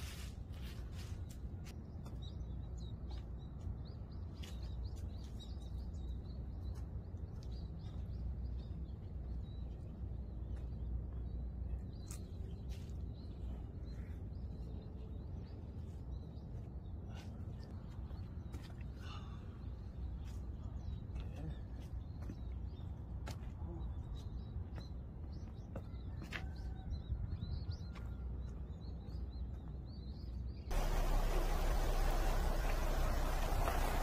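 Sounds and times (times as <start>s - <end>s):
low steady rumble: 30.7s - 34.0s.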